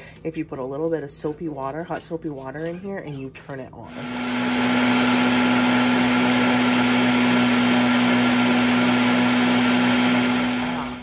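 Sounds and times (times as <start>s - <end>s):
food processor running: 3.9s - 11.0s
water churning in a bowl: 3.9s - 11.0s.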